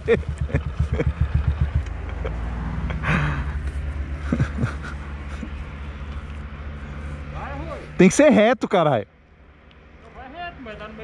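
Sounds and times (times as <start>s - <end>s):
motorcycle engine revving and idling: 0.0s - 2.4s.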